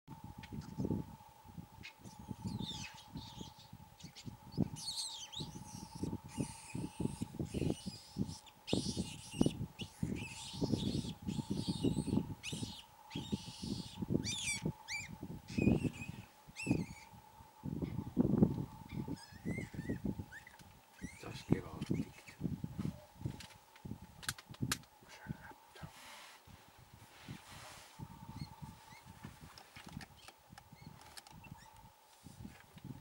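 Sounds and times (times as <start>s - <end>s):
wild birds chirping: 0.5s - 23.8s, 28.0s - 29.2s, 30.0s - 32.0s.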